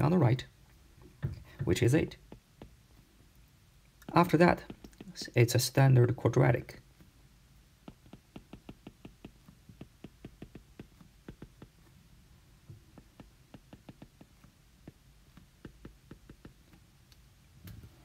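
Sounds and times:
faint low hum: 0:00.0 - 0:18.0
stylus tapping on glass screen: 0:01.2 - 0:02.8, 0:04.0 - 0:05.4, 0:07.8 - 0:11.9, 0:12.9 - 0:16.6.

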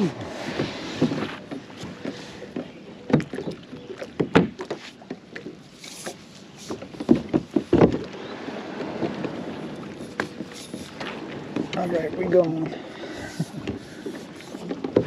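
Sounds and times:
paddle strokes in water: 0:00.0 - 0:15.0
paddle knocking on plastic hull: 0:02.6 - 0:05.5, 0:06.9 - 0:08.2, 0:14.6 - 0:15.0.

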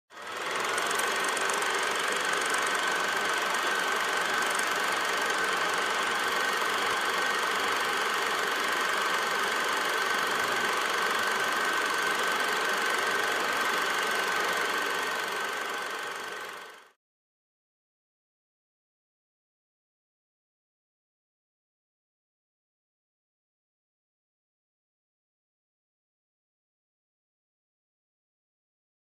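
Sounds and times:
film projector whirring and rattling: 0:00.1 - 0:17.0.

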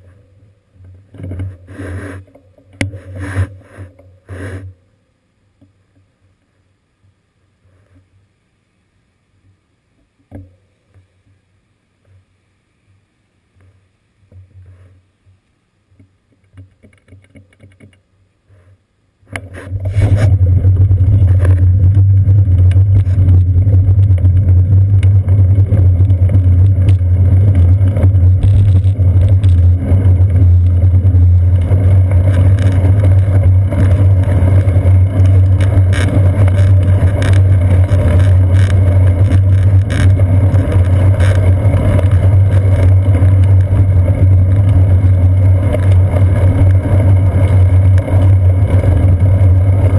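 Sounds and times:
road noise: 0:19.4 - 0:49.9
wind rumble on a camera: 0:19.4 - 0:49.9.

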